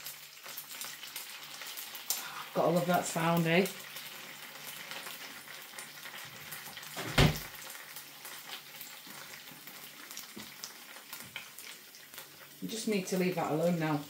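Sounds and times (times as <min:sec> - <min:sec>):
eggs sizzling in frying pan: 0:00.0 - 0:14.0
dull thump: 0:07.0 - 0:07.5.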